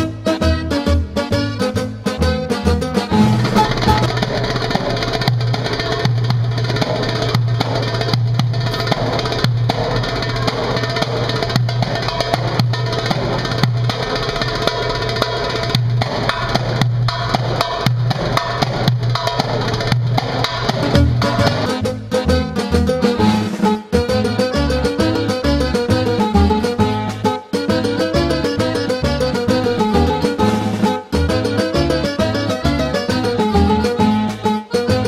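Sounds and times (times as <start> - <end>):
hand drum slaps and tones: 3.1 - 21.7.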